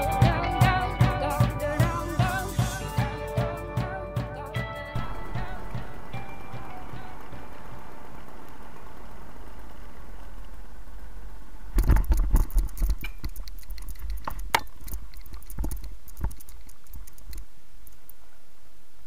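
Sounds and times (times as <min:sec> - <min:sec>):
harness clicks and rustles: 0:11.8 - 0:17.5.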